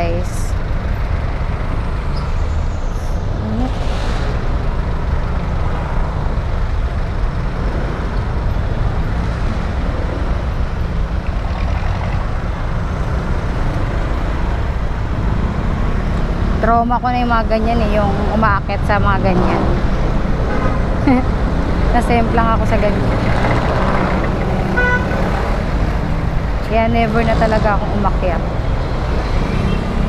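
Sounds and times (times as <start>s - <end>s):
road traffic noise: 0.0s - 30.0s
scooter engine rumble: 19.8s - 29.1s.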